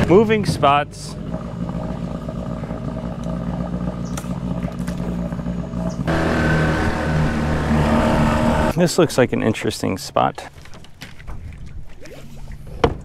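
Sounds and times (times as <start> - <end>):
outboard motor running: 0.0 - 8.8.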